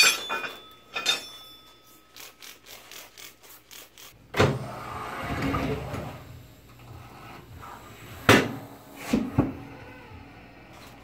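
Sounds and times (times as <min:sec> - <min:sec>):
metal clanks: 0:00.0 - 0:01.8
air-powered bead breaker rumble: 0:03.7 - 0:11.0.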